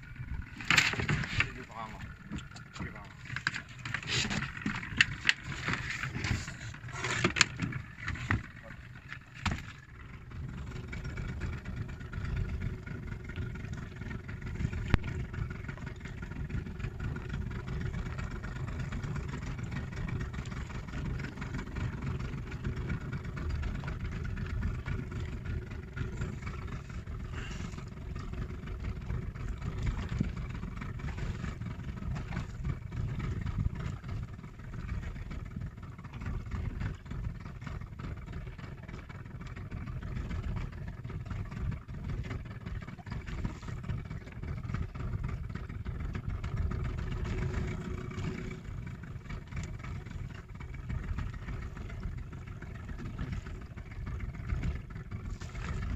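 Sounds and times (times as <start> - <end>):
boat engine running: 0.0 - 55.9.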